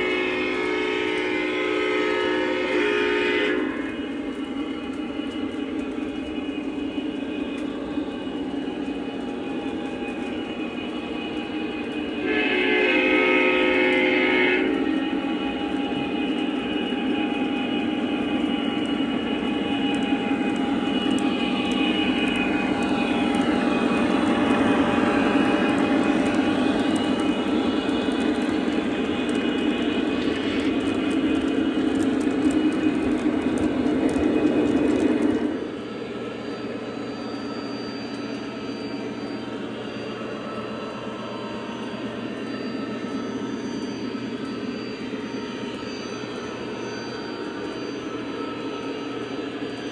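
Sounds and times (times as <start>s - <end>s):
diesel horn blast: 0.0s - 4.0s, 12.2s - 15.2s
model train rolling on track: 0.0s - 49.9s.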